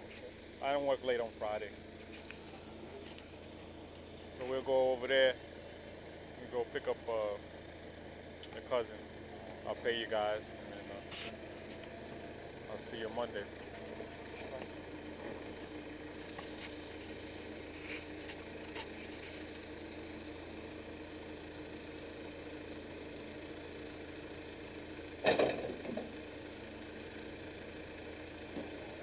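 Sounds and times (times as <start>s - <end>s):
diesel engine running: 0.0s - 29.0s.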